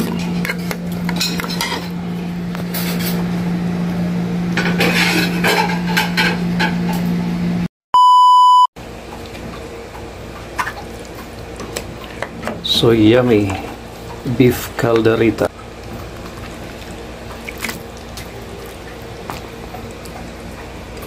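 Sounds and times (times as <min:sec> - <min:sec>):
steady low hum: 0:00.0 - 0:07.7
loud electronic beep: 0:08.0 - 0:08.7.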